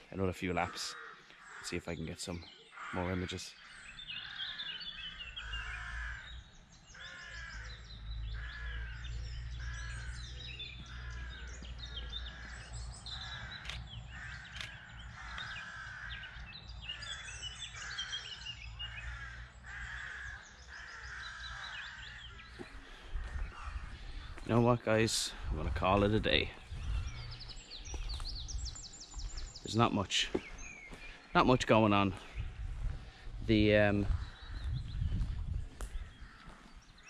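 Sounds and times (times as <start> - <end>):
harsh bird calls: 0.0 - 37.0
camera shutter clicks: 13.6 - 13.8, 14.5 - 14.8.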